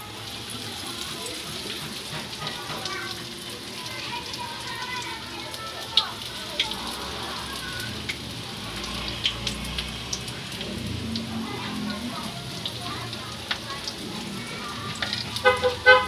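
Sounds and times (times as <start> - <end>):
food deep-frying in hot oil: 0.0 - 16.0.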